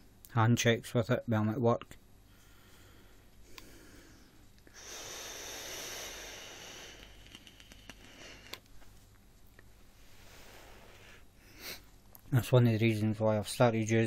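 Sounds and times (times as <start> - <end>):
airy hiss of vape draw: 4.7 - 8.6, 10.0 - 11.8
faint clicks: 7.0 - 8.8.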